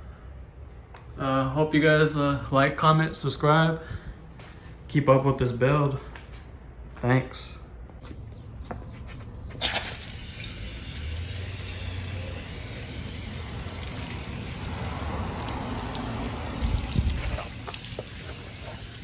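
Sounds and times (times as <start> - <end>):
hose spraying water: 9.6 - 19.0.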